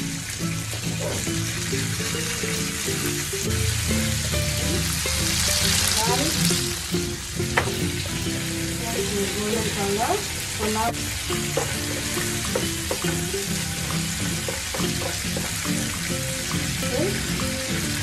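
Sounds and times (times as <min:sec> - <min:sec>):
food sizzling in hot oil: 0:00.0 - 0:18.0.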